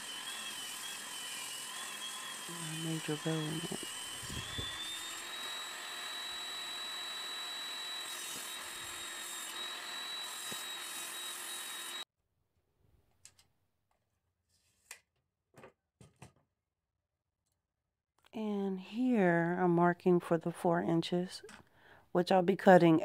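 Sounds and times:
table saw whining: 0.0 - 12.1.

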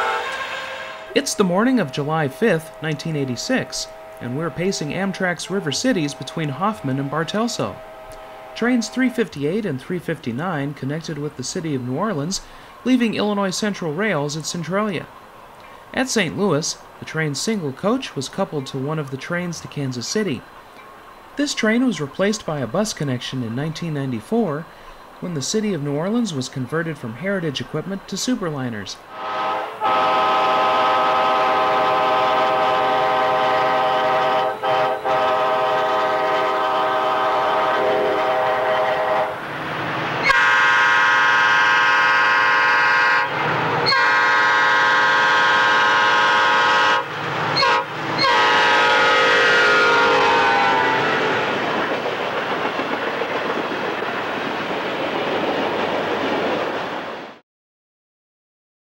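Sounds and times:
train air horn blasts: 0.0 - 9.7, 29.1 - 39.4, 40.2 - 51.5
train rolling rumble: 0.0 - 57.4.

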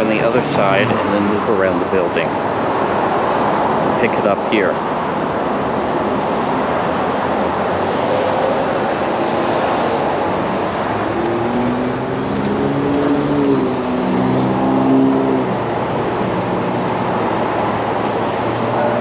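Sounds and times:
bus engine drone: 0.0 - 19.0
steady traffic noise: 0.0 - 19.0
thin high squeal: 11.8 - 15.3.

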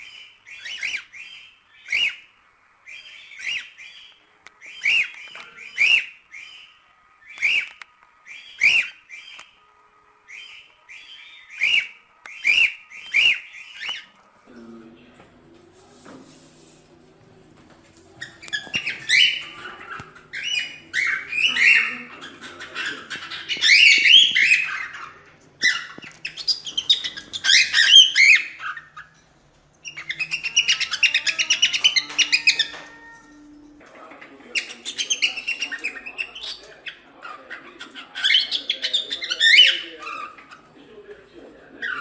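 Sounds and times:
cockatiel chirping and whistling: 0.0 - 2.2, 4.7 - 6.7, 7.3 - 7.7, 10.3 - 14.1, 18.2 - 21.9, 23.1 - 29.1, 29.8 - 33.2.

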